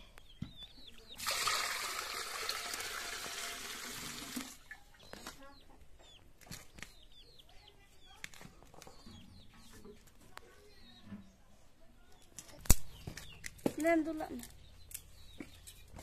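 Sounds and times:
chickens clucking and chirping: 0.0 - 1.2, 4.6 - 11.7, 12.8 - 16.0
water pouring into metal bowl: 1.2 - 4.7.

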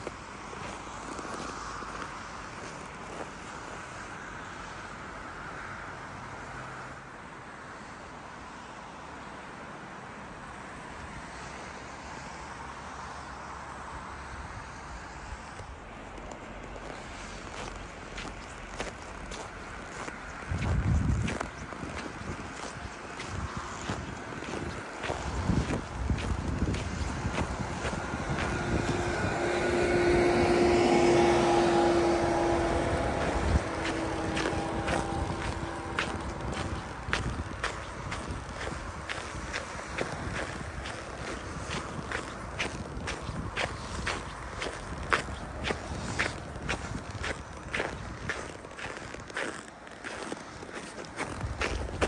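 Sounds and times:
distant road traffic hum: 0.0 - 52.0
wind: 0.0 - 52.0
wind rumble on microphone: 14.1 - 52.0.

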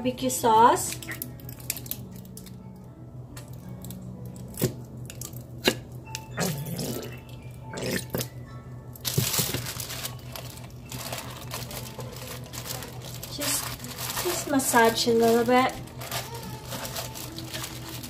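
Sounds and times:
plastic liner rustling: 9.0 - 18.0.

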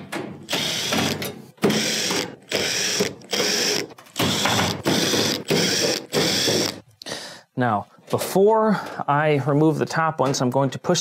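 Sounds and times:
cordless drill bursts: 0.5 - 6.8.

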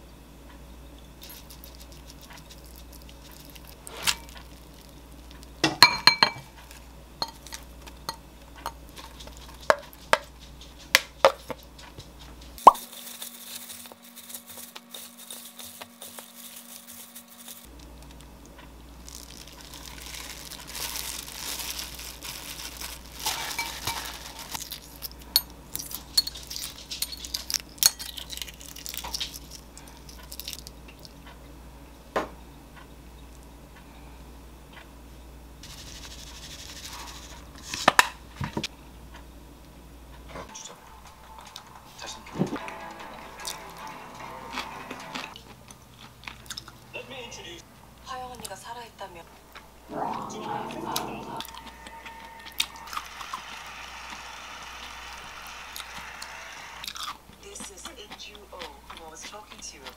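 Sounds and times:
spoon clinking in glass bowl: 5.8 - 6.5, 7.2 - 8.8, 25.4 - 28.2
wet rustling of tossed noodles: 12.6 - 18.2, 19.0 - 25.1.

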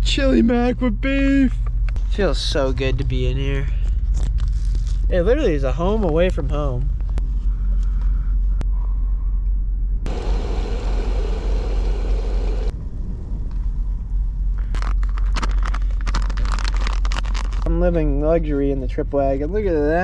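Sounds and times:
low rumble: 0.0 - 20.0
gas stove burner hissing: 10.1 - 12.7
foil pouch crinkling: 14.6 - 17.7.

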